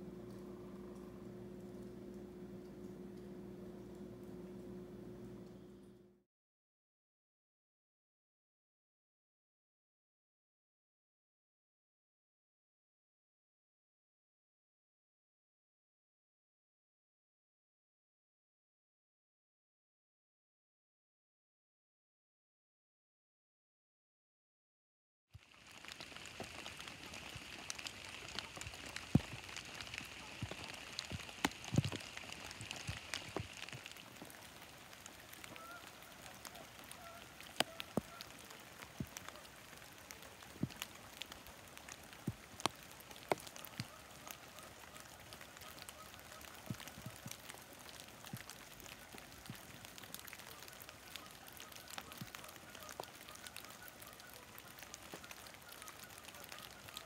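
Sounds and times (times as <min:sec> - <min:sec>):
rain dripping on leaves: 0:00.0 - 0:05.7, 0:25.4 - 0:57.0
running water: 0:25.4 - 0:57.0
geese honking faintly: 0:25.8 - 0:57.0.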